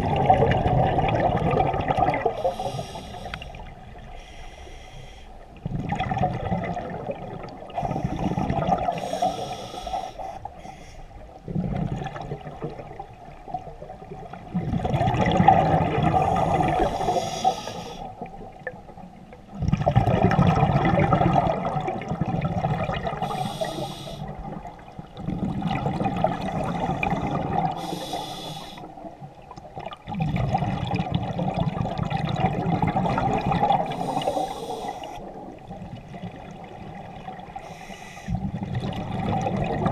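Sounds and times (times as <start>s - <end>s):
exhaled bubbles gurgling: 0.0s - 4.2s, 5.4s - 10.6s, 11.2s - 39.9s
regulator inhalation hiss: 2.4s - 3.6s, 4.2s - 5.3s, 9.0s - 11.0s, 16.4s - 18.1s, 23.2s - 24.3s, 27.8s - 28.9s, 33.9s - 35.3s, 37.6s - 38.3s.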